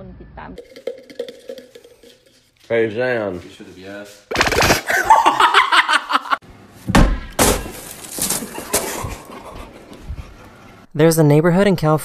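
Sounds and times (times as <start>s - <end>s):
crashing bang: 6.9s - 9.0s.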